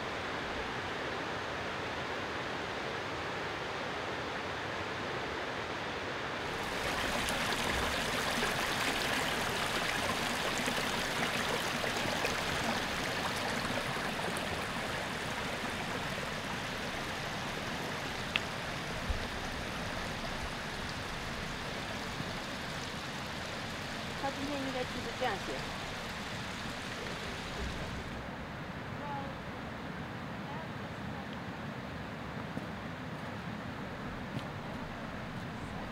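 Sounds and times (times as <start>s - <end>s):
stream rushing over stones: 6.4s - 28.4s.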